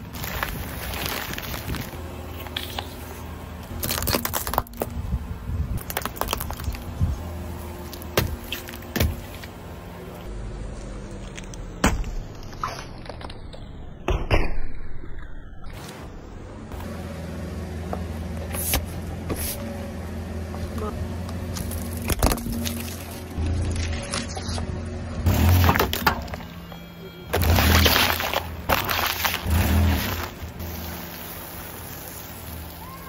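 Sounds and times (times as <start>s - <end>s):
car engine idling: 16.5s - 33.0s
tyre crushing plastic packets: 27.3s - 30.4s.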